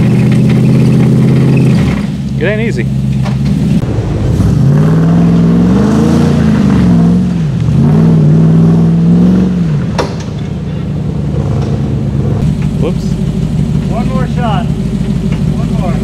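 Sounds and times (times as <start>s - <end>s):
engine revving under load: 0.0s - 10.4s, 11.0s - 16.0s
sharp knock: 10.0s - 10.5s.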